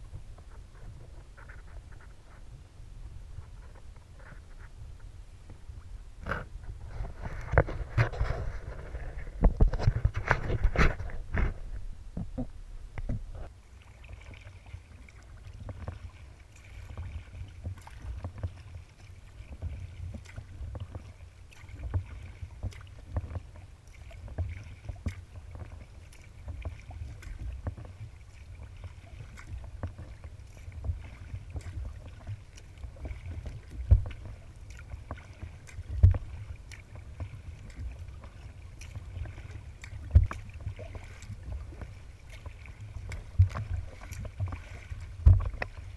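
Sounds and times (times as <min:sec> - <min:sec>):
steady low rumble: 0:00.0 - 0:13.6
water splashing against hull: 0:00.0 - 0:45.9.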